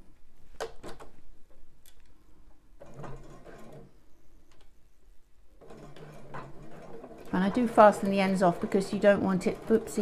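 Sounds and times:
sewing machine stitching: 0:02.8 - 0:04.0, 0:05.6 - 0:10.0.

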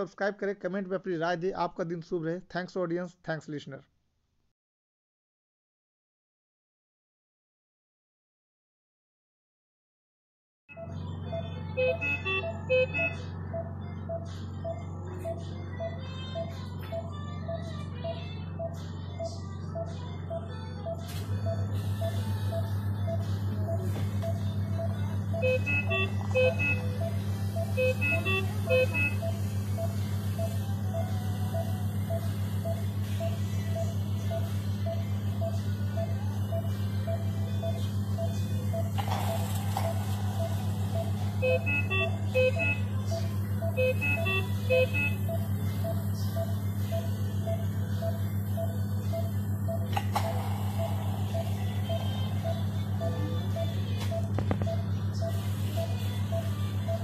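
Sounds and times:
patient monitor beeping: 0:10.8 - 0:57.0
alarm tones: 0:11.7 - 0:15.4, 0:21.4 - 0:57.0.

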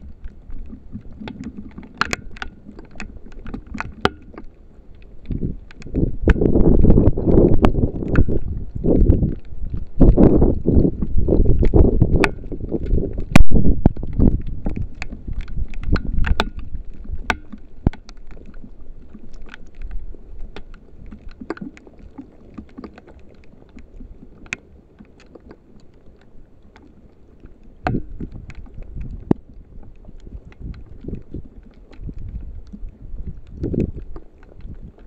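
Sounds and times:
sharp clicks and knocks: 0:14.6 - 0:18.1.

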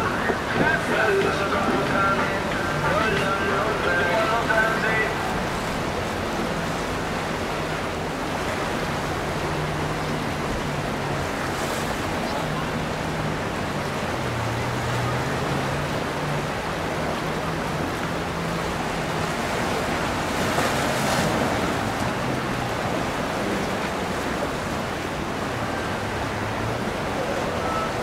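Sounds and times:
wind buffeting microphone: 0:00.0 - 0:14.5
boat engine drone: 0:00.0 - 0:28.0
waves and surf rushing: 0:00.0 - 0:28.0.

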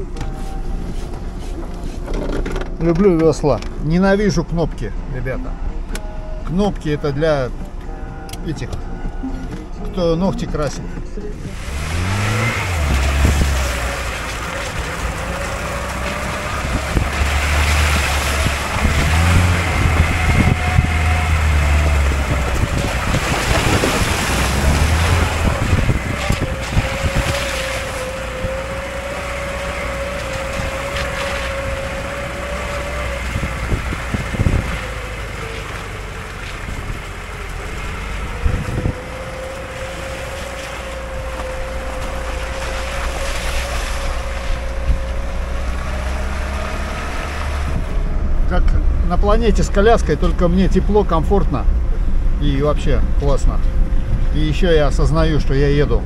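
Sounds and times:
car engine drone: 0:00.0 - 0:56.0
tyres on snow and slush: 0:10.3 - 0:56.0
wind on microphone: 0:11.4 - 0:13.9, 0:16.0 - 0:29.1, 0:30.2 - 0:49.0.

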